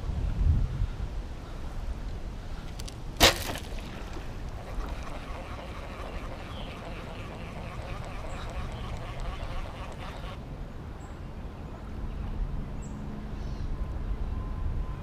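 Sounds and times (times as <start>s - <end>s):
duck quacking: 4.6s - 10.4s.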